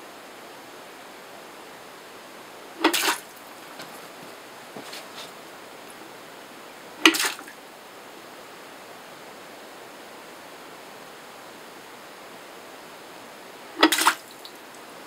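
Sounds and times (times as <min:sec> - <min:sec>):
bucket tipping with sharp knock: 0:02.8 - 0:03.2, 0:07.0 - 0:07.4, 0:13.8 - 0:14.2
short rush of water: 0:02.8 - 0:03.4, 0:13.8 - 0:14.5
water trickling: 0:13.8 - 0:14.8.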